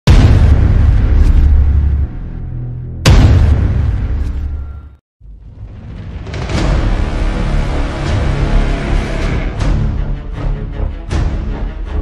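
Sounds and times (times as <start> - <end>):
deep cinematic boom: 0.1 - 4.6.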